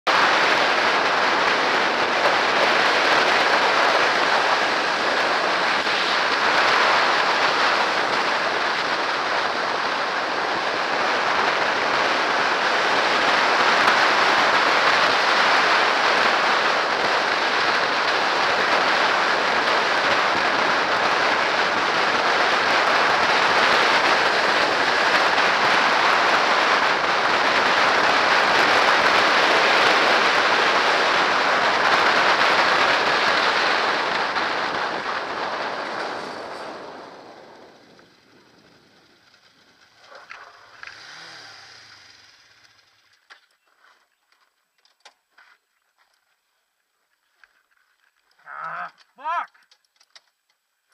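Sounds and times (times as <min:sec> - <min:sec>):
road noise: 0:00.0 - 0:50.9
wind rush on microphone: 0:00.1 - 0:39.8.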